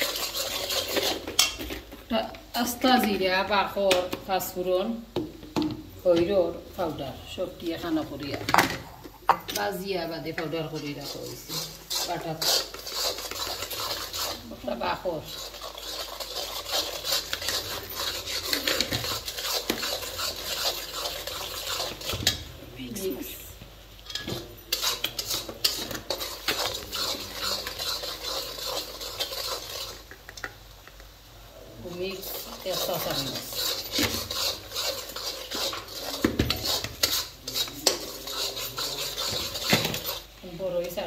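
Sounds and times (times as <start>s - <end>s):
spoon stirring and scraping in pan: 0.0s - 41.0s.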